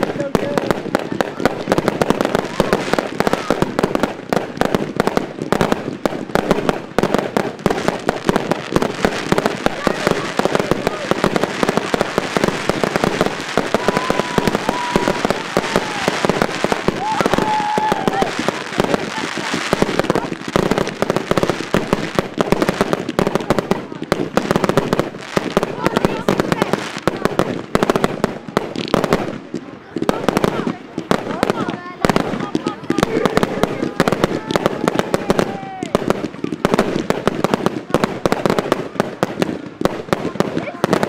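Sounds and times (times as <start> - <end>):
fireworks shells bursting: 0.0 - 23.3
fireworks whistling: 0.0 - 41.0.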